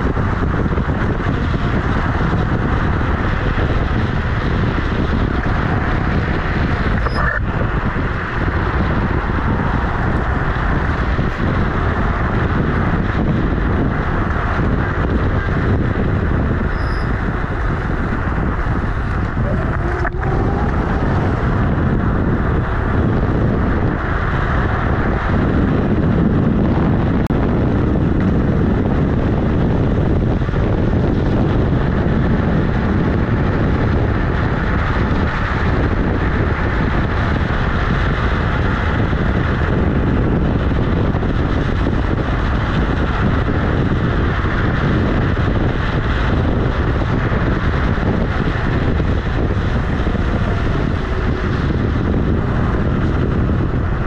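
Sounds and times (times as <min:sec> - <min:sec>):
tyre rumbling on road: 0:00.0 - 0:54.0
wind rushing over microphone: 0:00.0 - 0:54.0.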